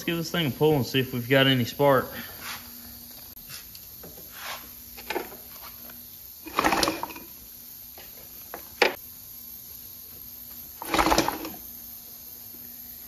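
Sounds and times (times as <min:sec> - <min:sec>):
engine pull start rushing: 0:06.5 - 0:07.3, 0:10.8 - 0:11.6.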